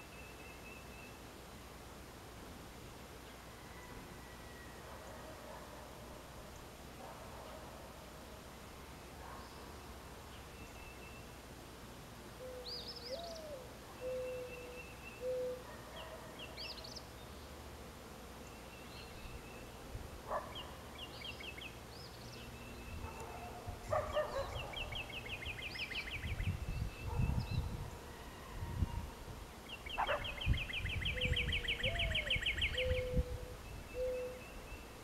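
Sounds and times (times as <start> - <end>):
mourning dove cooing: 12.4 - 16.5, 30.0 - 34.6
small birds chirping: 18.4 - 27.8, 29.6 - 35.0.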